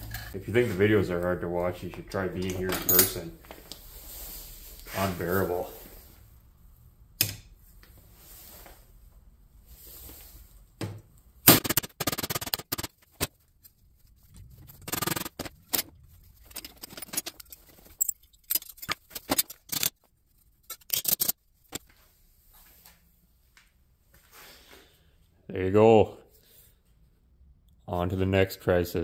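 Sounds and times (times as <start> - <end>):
hammer striking sheet metal: 11.5 - 12.9.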